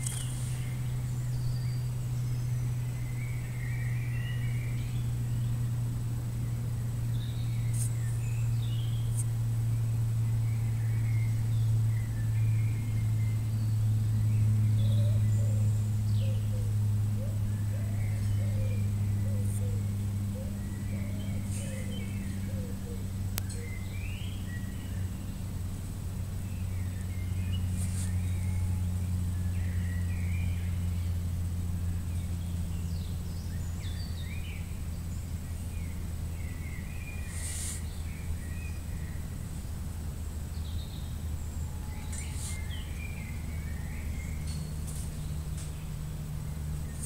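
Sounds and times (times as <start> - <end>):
short chirping calls: 0.0 - 5.2, 35.2 - 39.3, 40.6 - 45.8
steady low hum: 0.0 - 47.0.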